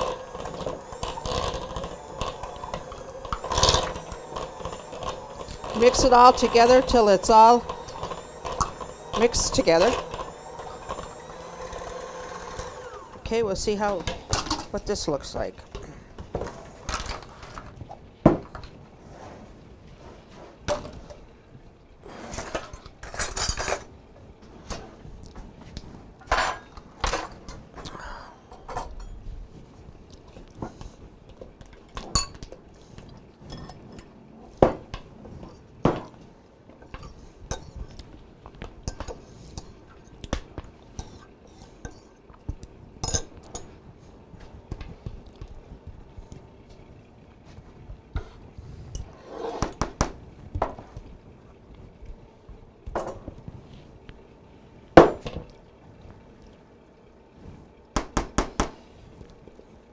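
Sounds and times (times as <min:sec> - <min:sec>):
utensils scraping a bowl: 0:00.0 - 0:14.1, 0:49.0 - 0:49.8.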